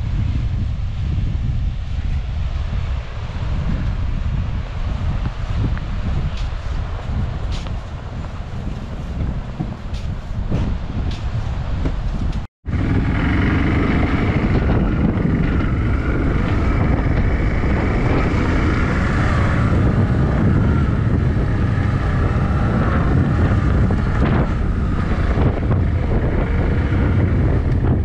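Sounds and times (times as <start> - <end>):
wind noise on microphone: 0.0 - 28.0
vehicle engine running: 12.6 - 28.0.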